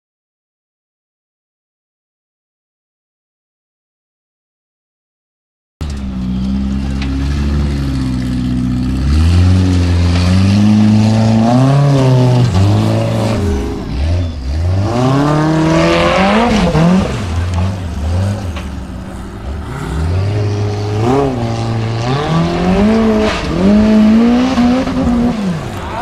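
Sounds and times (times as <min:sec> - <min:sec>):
buggy engine revving hard: 0:05.8 - 0:26.0.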